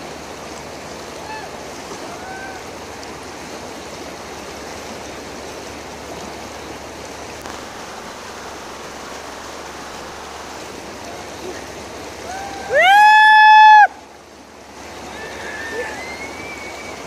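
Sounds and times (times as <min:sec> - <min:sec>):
river flowing: 0:00.0 - 0:17.0.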